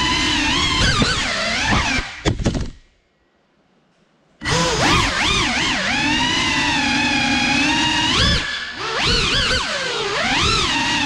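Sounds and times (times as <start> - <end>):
drone motors whining: 4.4 - 11.0.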